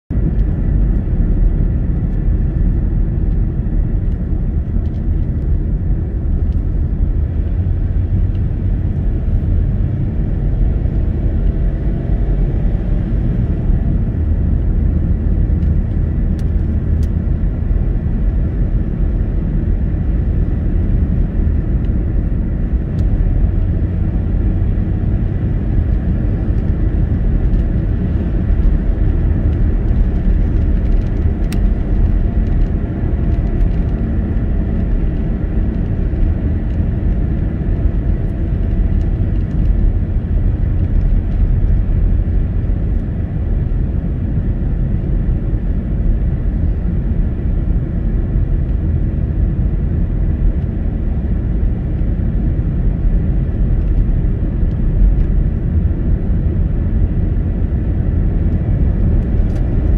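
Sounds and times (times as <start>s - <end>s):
car cruising rumble inside cabin: 0.1s - 59.9s.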